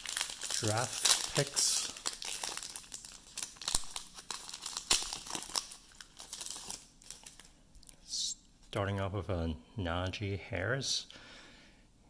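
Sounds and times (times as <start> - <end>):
foil wrapper tearing and crinkling: 0.0 - 7.5.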